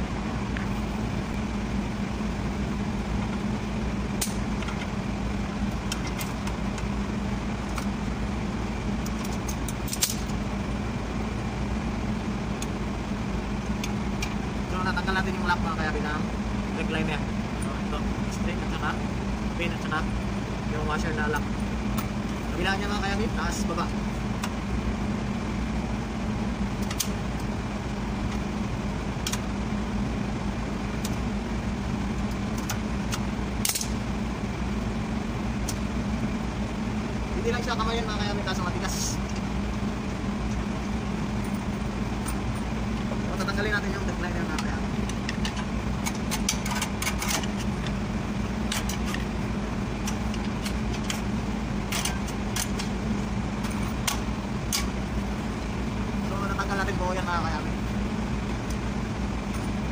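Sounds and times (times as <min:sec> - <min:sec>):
low machine hum: 0:00.0 - 0:59.9
pliers clicking on metal: 0:33.6 - 0:34.0
screwdriver and brake parts clicking: 0:44.6 - 0:47.9.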